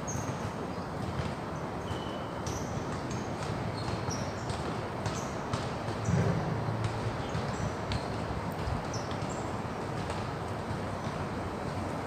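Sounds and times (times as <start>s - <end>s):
outdoor background hiss: 0.0s - 12.0s
low rumble: 6.1s - 7.2s.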